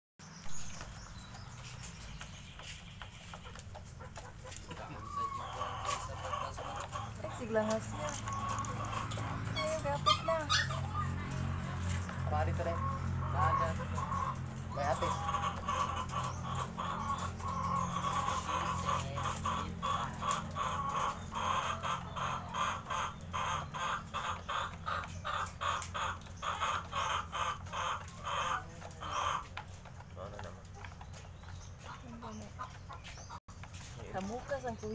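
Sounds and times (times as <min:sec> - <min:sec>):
hen clucking softly: 0:03.2 - 0:29.8.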